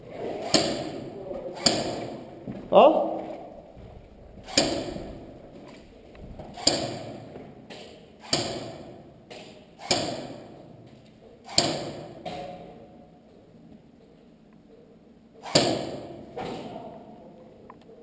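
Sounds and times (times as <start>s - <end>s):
airsoft gun shots: 8.2s - 8.8s, 11.5s - 12.2s, 15.4s - 16.2s.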